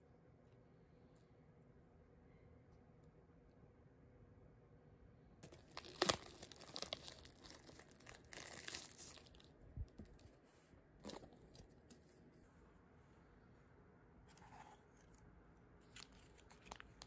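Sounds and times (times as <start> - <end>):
plastic wrap crinkling and tearing: 5.4 - 10.2, 15.8 - 17.0.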